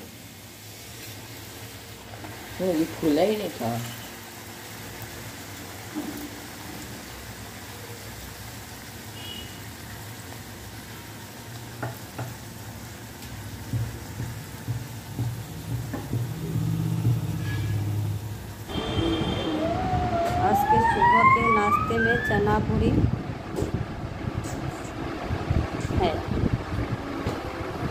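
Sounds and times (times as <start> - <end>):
oil sizzling: 0.0 - 22.6
low rumble: 13.8 - 18.6, 22.4 - 27.9.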